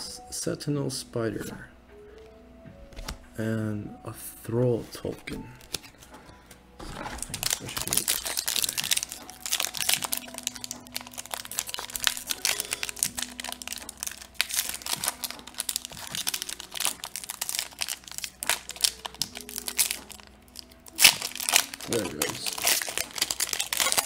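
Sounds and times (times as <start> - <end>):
foil wrapper crinkling: 4.8 - 6.1, 6.8 - 24.0.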